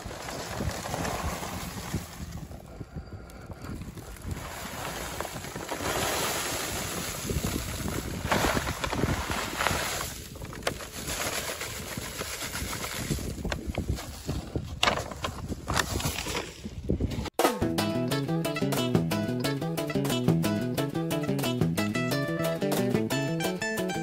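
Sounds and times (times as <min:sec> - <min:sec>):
wind buffeting microphone: 0:00.0 - 0:17.3
paper bag rustling: 0:04.3 - 0:16.6.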